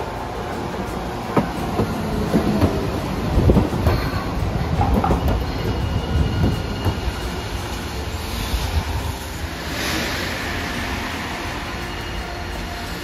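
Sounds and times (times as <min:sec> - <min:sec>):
tram wheels and motors rumbling: 0:00.0 - 0:13.0
wheels clacking over rail joints: 0:00.0 - 0:13.0
faint high wheel squeal: 0:03.7 - 0:13.0
steady hiss: 0:05.4 - 0:13.0.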